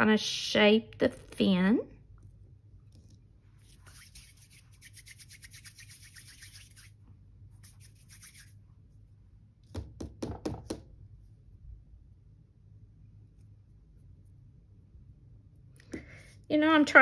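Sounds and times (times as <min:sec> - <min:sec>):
hands rolling clay: 0:02.9 - 0:09.0
clay taps: 0:09.6 - 0:10.9.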